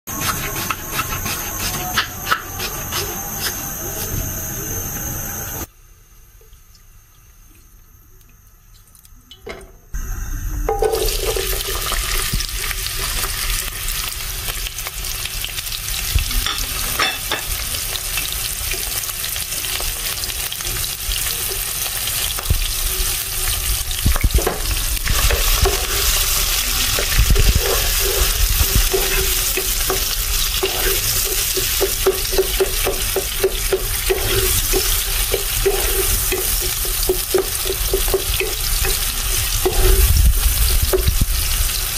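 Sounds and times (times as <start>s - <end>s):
spatula stirring and knocking pan: 0.1s - 3.6s, 24.0s - 41.5s
onion sizzling in oil: 0.1s - 4.4s, 10.0s - 41.9s
steady high hum: 0.1s - 14.6s, 22.1s - 41.9s.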